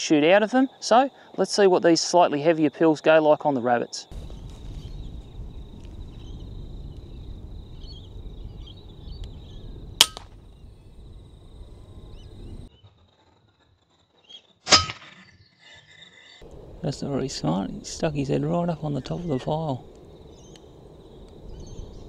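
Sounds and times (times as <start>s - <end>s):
low background rumble: 4.1s - 12.7s, 16.4s - 22.0s
sharp click: 10.0s - 10.3s
air rifle shot: 10.0s - 10.4s.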